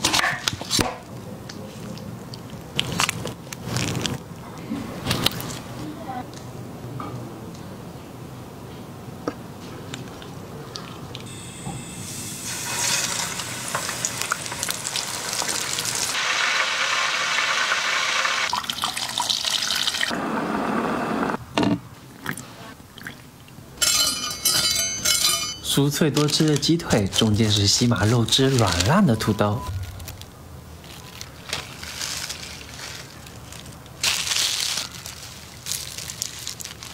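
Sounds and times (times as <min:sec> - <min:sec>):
chicken deep-frying in oil: 0:11.3 - 0:20.2.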